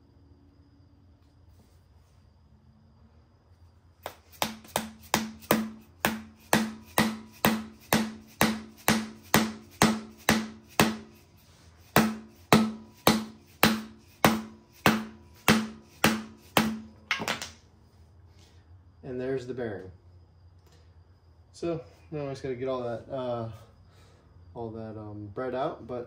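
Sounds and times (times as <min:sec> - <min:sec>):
mallet striking metal rod: 0:04.8 - 0:11.1, 0:11.9 - 0:16.9.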